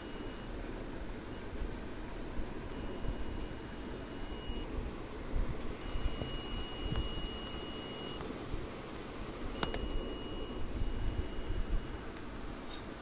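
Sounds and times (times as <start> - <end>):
multimeter buzzer beeping: 0.0 - 0.6, 2.7 - 4.7, 5.8 - 8.2, 9.6 - 12.1
probe click: 2.7 - 4.7, 5.8 - 8.2, 9.6 - 12.0.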